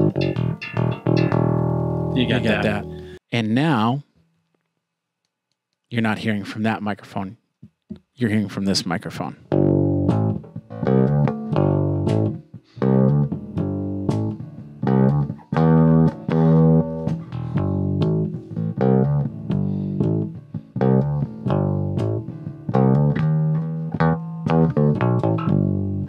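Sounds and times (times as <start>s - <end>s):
electric bass guitar plucked notes: 0.0s - 3.2s, 9.4s - 26.0s.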